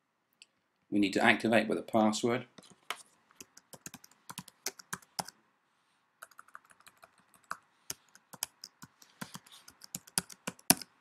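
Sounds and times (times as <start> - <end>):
keyboard typing: 2.6 - 5.4, 6.2 - 11.0.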